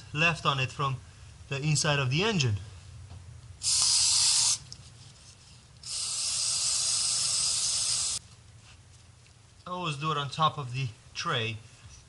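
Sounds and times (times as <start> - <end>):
aerosol can spray hissing: 3.6 - 4.6, 5.8 - 8.2.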